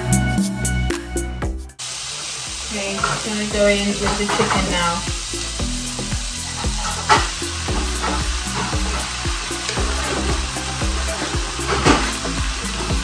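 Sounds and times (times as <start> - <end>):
background music: 0.0 - 1.8, 3.6 - 13.0
food sizzling in hot oil: 1.8 - 13.0.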